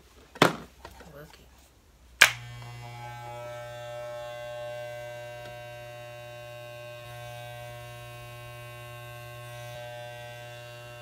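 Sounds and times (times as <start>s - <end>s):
electric hair clippers buzzing: 2.2s - 11.0s.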